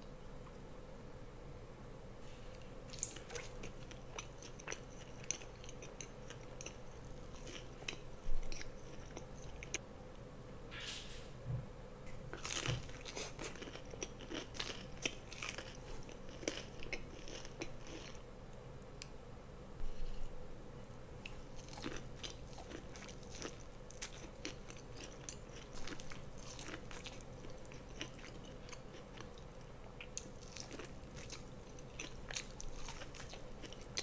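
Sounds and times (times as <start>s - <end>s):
crunching fried chicken: 12.3s - 18.2s, 21.3s - 34.0s.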